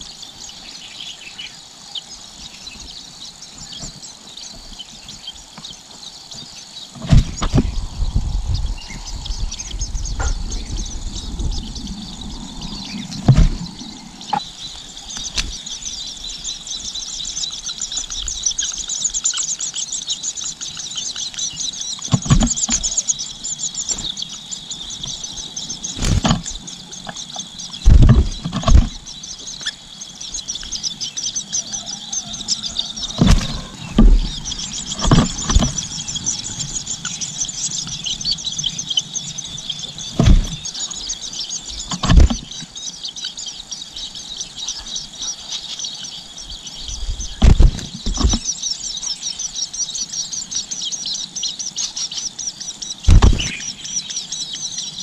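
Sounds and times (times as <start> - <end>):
nestlings begging chatter: 0.0 - 55.0
dull thumps: 7.0 - 8.3, 13.1 - 14.4, 27.8 - 29.0, 33.1 - 35.9, 40.1 - 40.6, 41.9 - 42.5, 47.4 - 48.4, 53.1 - 53.6.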